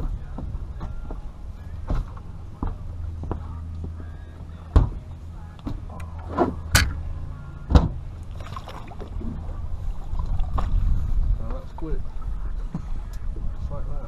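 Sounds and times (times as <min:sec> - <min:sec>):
knocks and thumps on boat deck: 0:00.0 - 0:07.0, 0:07.6 - 0:08.0
steady low rumble: 0:00.0 - 0:14.0.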